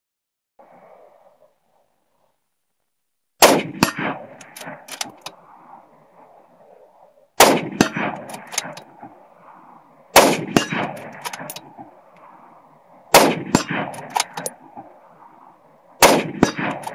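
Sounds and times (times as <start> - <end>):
rifle shots: 3.4 - 5.3, 7.4 - 9.2, 10.1 - 12.4, 13.1 - 14.9, 16.0 - 16.9
sharp echoing crack: 3.4 - 16.9.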